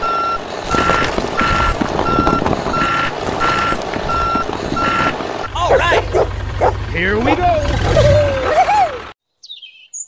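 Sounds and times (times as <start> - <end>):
reversing alarm beeping: 0.0 - 5.6.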